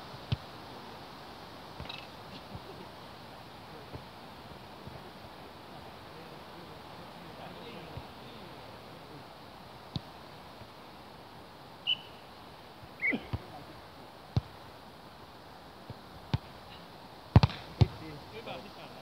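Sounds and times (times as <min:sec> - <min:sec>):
short high chirps: 0:11.8 - 0:12.2
volleyball hits: 0:17.3 - 0:18.0.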